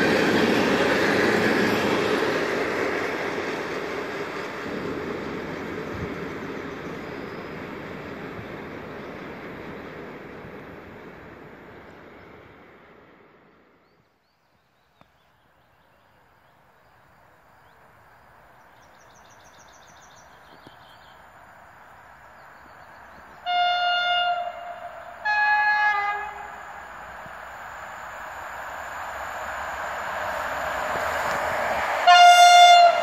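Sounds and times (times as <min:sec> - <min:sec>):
freight train rumble: 0:00.0 - 0:14.0, 0:15.4 - 0:33.0
approaching train rumble: 0:00.0 - 0:33.0
train horn blasts: 0:23.4 - 0:26.5, 0:32.0 - 0:33.0.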